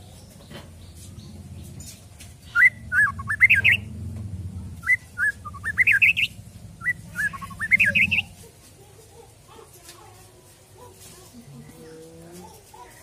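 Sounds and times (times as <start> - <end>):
bird singing whistled phrases: 2.5 - 3.8, 4.8 - 8.3.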